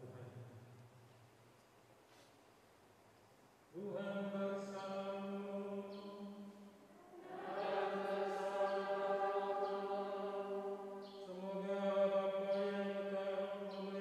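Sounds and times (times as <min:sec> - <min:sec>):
slow church music: 0:03.8 - 0:14.0.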